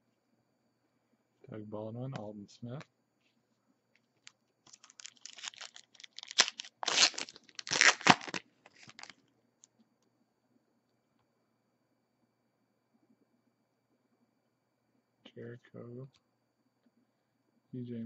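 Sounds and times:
foil wrapper tearing and crinkling: 4.7 - 9.1.

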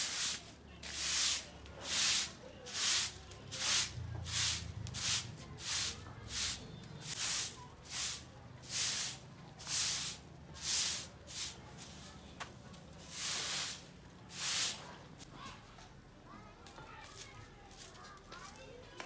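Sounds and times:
broom sweeping dusty floor: 0.0 - 12.2, 13.0 - 15.0.

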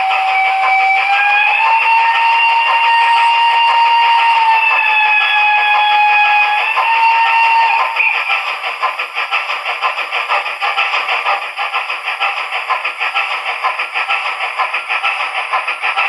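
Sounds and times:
model steam whistle: 0.0 - 8.4
thin steam chuffing: 0.0 - 16.0.

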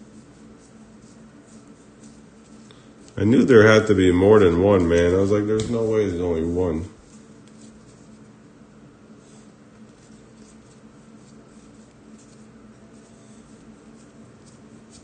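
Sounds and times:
low steady hum: 0.0 - 15.0
trading cards scraping and flicking: 7.0 - 8.4, 9.1 - 15.0.

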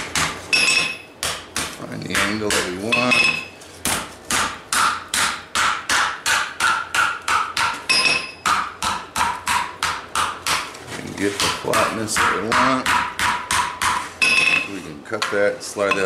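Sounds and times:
hammer striking hot steel on anvil: 4.4 - 10.6, 11.4 - 16.0.

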